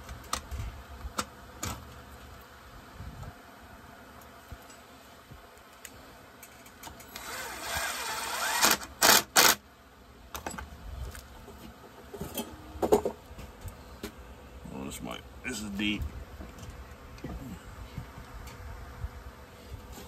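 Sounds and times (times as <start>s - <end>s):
cordless screwdriver whirring: 7.1s - 9.6s.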